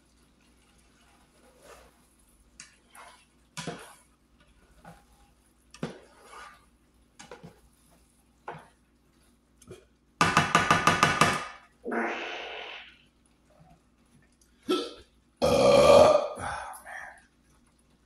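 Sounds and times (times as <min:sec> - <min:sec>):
spatula scraping pan: 0:00.6 - 0:08.8
spatula knocking against pan: 0:10.2 - 0:11.6.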